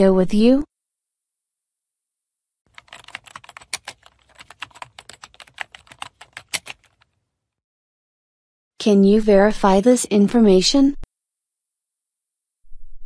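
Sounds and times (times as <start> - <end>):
laptop keyboard typing: 2.7 - 7.1.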